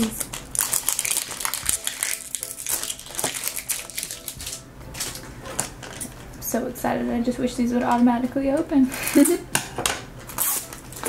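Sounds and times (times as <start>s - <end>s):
plastic wrap crinkling: 0.0s - 6.5s, 10.2s - 11.0s.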